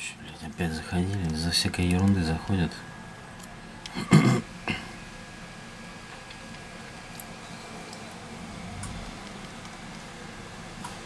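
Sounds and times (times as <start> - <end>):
low background hum and hiss: 0.0 - 11.0.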